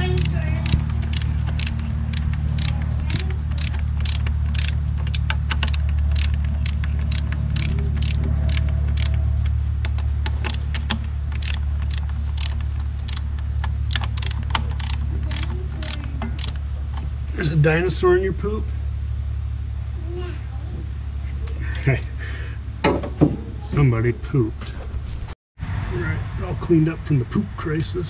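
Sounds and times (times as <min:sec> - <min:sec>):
hand ratchet clicking: 0:00.0 - 0:16.6
low hum: 0:00.0 - 0:22.8.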